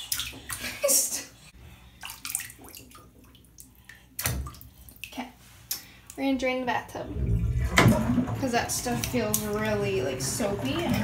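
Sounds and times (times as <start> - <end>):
water drips: 0.0 - 0.9, 1.9 - 11.0
water splashing in bathtub: 0.0 - 11.0.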